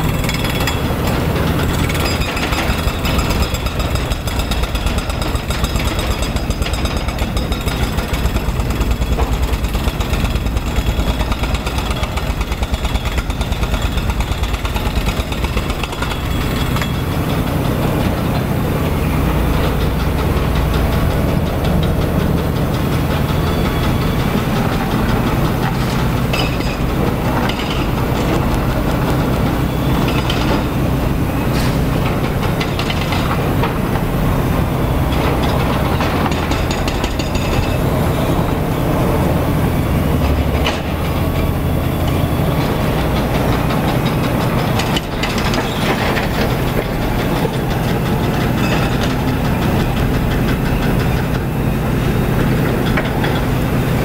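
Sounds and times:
diesel excavator engines running: 0:00.0 - 0:54.0
hydraulic breaker pounding rock: 0:00.0 - 0:54.0.

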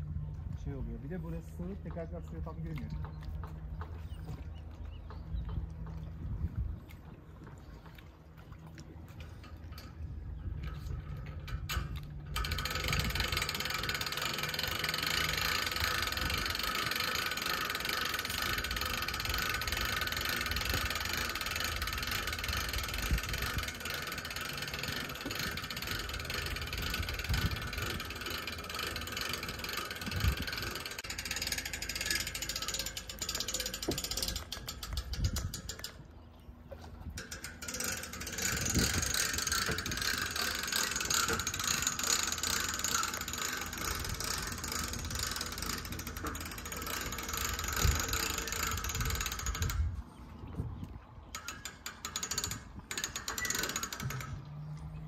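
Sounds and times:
winch ratchet clicking: 0:09.4 - 0:36.0, 0:37.2 - 0:50.0, 0:51.3 - 0:54.8.

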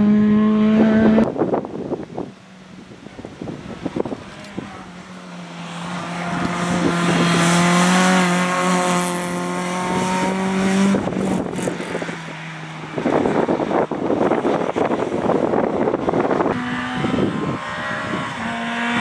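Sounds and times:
rough rushing noise: 0:00.0 - 0:19.0
rally car driving past: 0:04.2 - 0:19.0.

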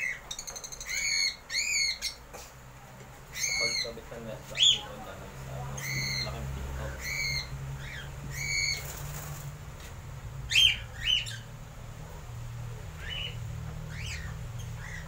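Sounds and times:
cockatiels chirping: 0:00.0 - 0:02.2, 0:03.3 - 0:05.0, 0:05.8 - 0:09.2, 0:10.5 - 0:11.5, 0:12.9 - 0:15.0.

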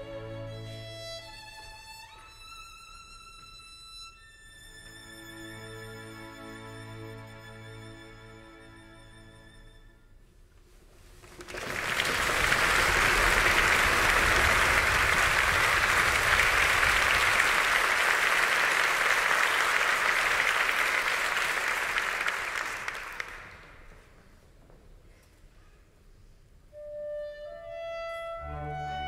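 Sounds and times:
audience applauding: 0:11.2 - 0:24.0.

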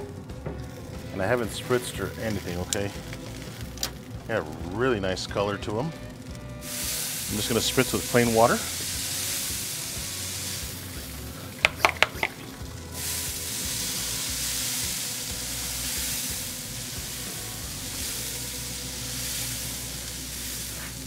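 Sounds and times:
spray bottle hissing: 0:06.6 - 0:21.0.

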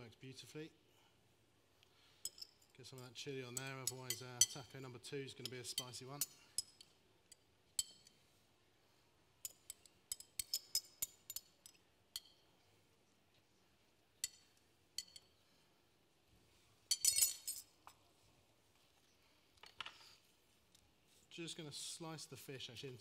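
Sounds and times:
spoon clinking glass bowl: 0:03.5 - 0:04.7, 0:09.4 - 0:12.4, 0:14.2 - 0:15.3.

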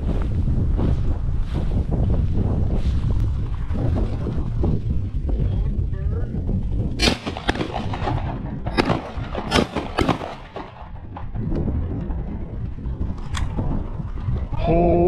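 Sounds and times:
wind rumbling on microphone: 0:00.0 - 0:15.0
shotgun shots: 0:07.0 - 0:11.0.

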